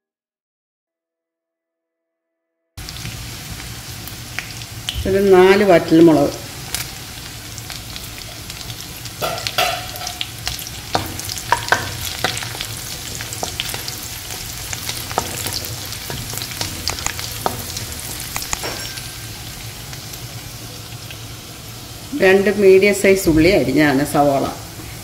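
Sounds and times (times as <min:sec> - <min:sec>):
garlic sizzling in hot oil: 0:02.8 - 0:25.0
spatula scraping and tapping pan: 0:09.2 - 0:19.1.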